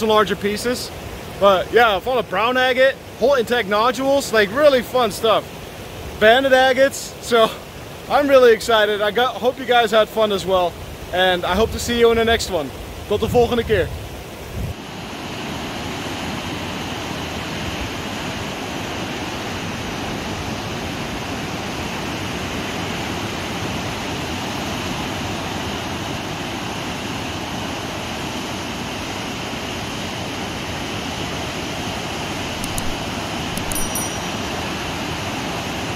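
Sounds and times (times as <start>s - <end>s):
ocean surf: 0.0s - 35.9s
faint high ticks: 32.6s - 34.4s.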